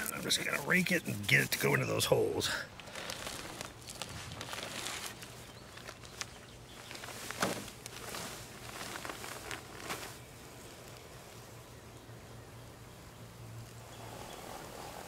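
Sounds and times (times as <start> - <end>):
footsteps on grass: 0.0 - 10.3
sand bag rustling: 0.0 - 11.5
spreader wheeled over lawn: 2.9 - 11.5.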